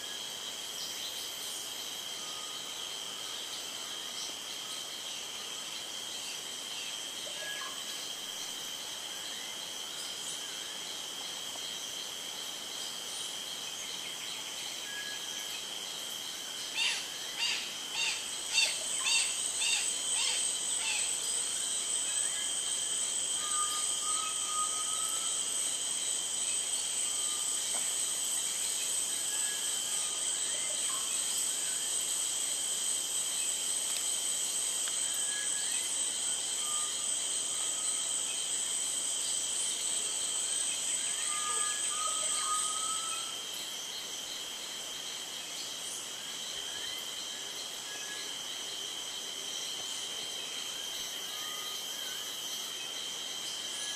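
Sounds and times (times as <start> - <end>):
high-pitched insect drone: 0.0 - 53.9.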